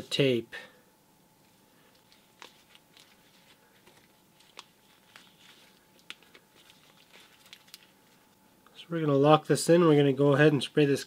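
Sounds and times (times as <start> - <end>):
masking tape crinkling: 1.8 - 8.4.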